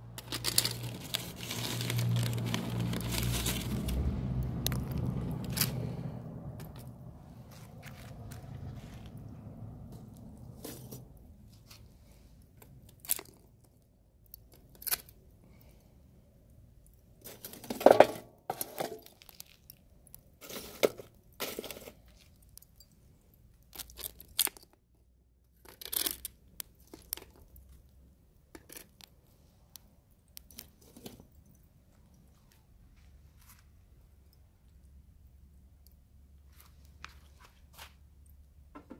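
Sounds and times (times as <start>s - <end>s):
charcoal crackling and popping: 0.0s - 24.9s, 25.6s - 31.6s.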